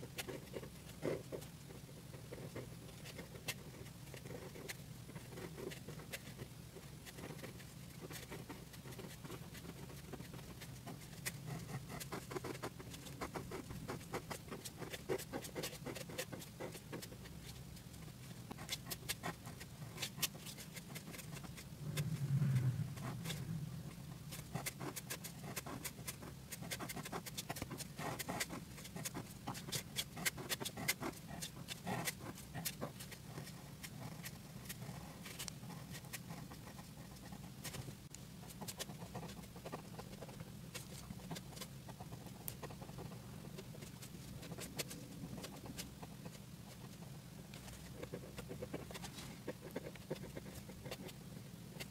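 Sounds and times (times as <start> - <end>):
pen scratching on paper: 0.0 - 17.6, 18.5 - 51.9
low steady hum: 0.0 - 51.9
low rumble: 21.8 - 24.3.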